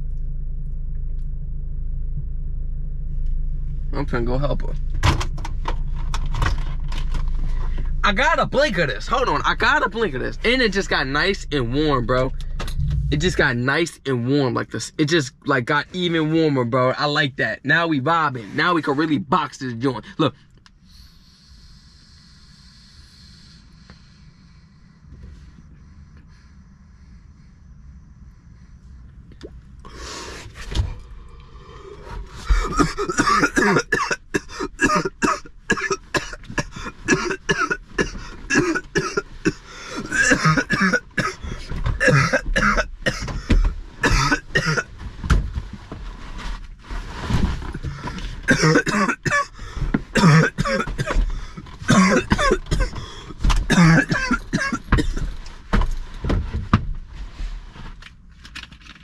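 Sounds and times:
man coughing: 32.4s - 44.9s, 48.4s - 55.3s.

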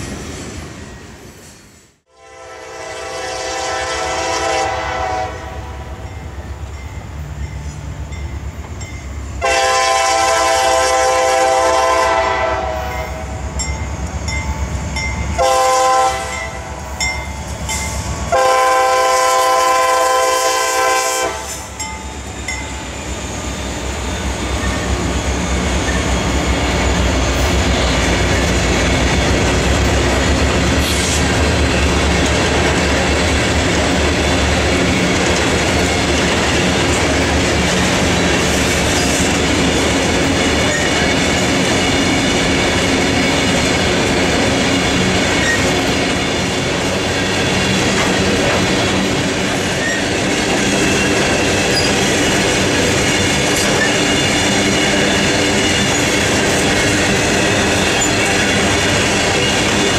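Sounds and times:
train air horn blasts: 2.1s - 6.0s, 9.4s - 13.4s, 15.4s - 16.9s, 18.3s - 21.7s
locomotive engines rumbling: 2.4s - 59.9s
train wheels clacking on rails: 16.2s - 59.9s.

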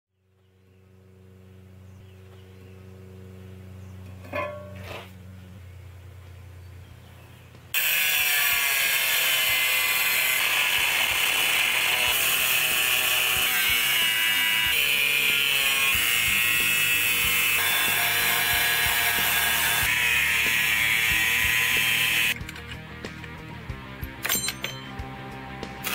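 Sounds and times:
angle grinder cutting steel: 7.8s - 22.4s.

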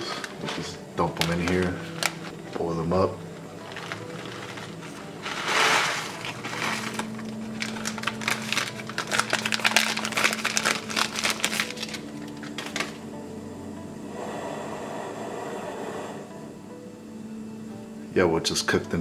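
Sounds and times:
foil pouch crinkling: 0.0s - 13.0s.

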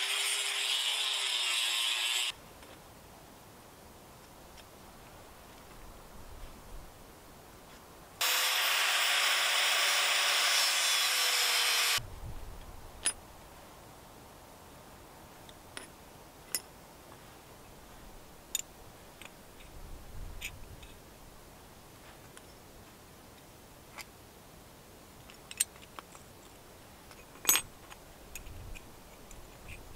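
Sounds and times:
power tool running: 0.0s - 2.3s, 8.2s - 12.0s.

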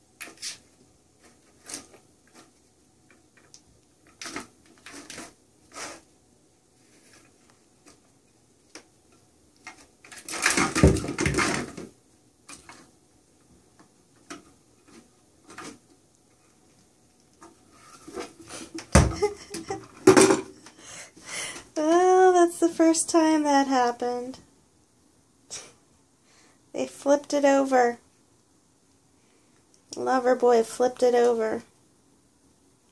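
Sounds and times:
plastic toy clattering: 9.7s - 11.9s.

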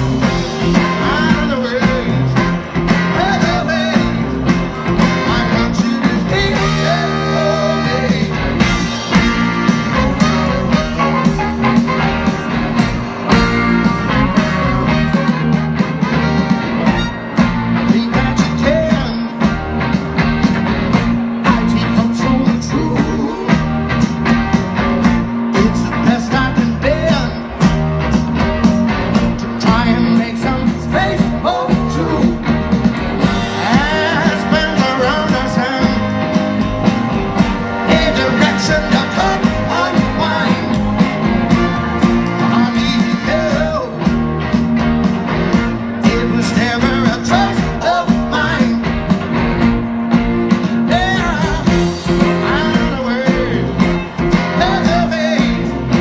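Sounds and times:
person singing: 0.0s - 8.9s, 9.6s - 11.7s, 17.8s - 19.5s, 21.4s - 23.7s, 25.4s - 27.6s, 33.2s - 36.6s, 37.6s - 44.2s, 46.0s - 48.9s, 50.8s - 56.0s
live rock band playing: 0.0s - 56.0s
steady drum beat: 0.0s - 56.0s.

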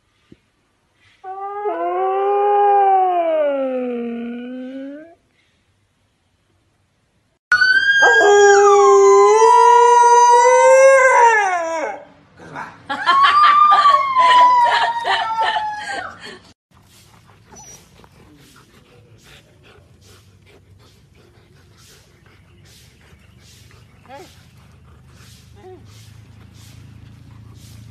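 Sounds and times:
husky howling: 7.5s - 12.1s.

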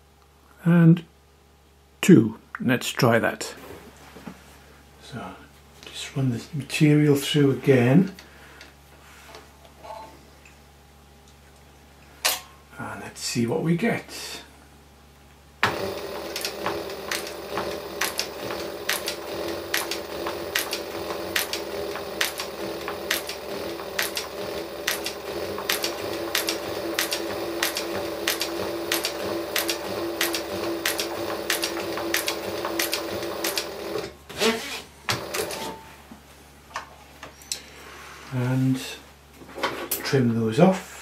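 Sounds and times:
sewing machine stitch clicks: 15.6s - 34.1s
sewing machine motor hum: 15.6s - 34.2s, 35.1s - 35.8s.

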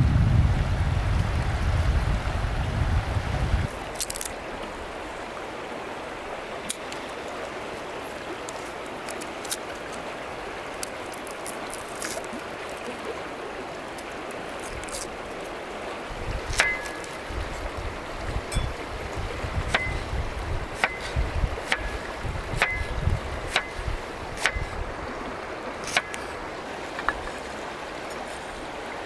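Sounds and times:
low rumble: 0.0s - 3.6s
river flowing: 0.8s - 29.0s
cleaver chopping on wooden board: 16.5s - 17.1s, 19.7s - 20.1s, 20.8s - 24.7s, 25.8s - 26.2s.

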